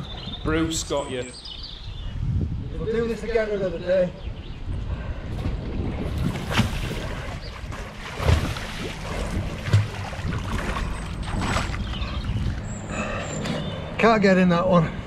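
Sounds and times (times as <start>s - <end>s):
river water sloshing and splashing: 5.8s - 12.9s
sharp splashes: 6.1s - 12.4s.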